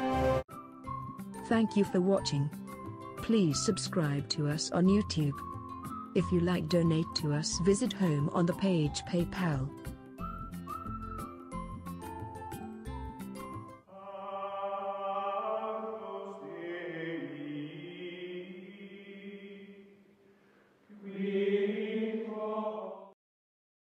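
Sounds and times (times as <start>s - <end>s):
chanted choir voices: 13.9s - 20.0s, 20.9s - 23.2s.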